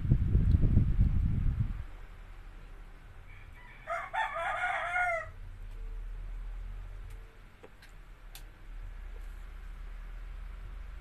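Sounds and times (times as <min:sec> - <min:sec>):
rooster crowing: 0:03.2 - 0:05.4.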